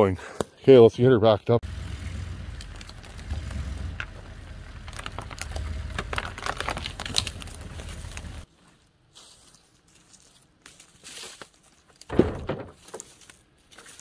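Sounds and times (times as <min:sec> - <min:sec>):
truck engine rumble: 0:01.6 - 0:08.5
tyres crackling over twigs: 0:02.4 - 0:12.1, 0:12.8 - 0:14.0.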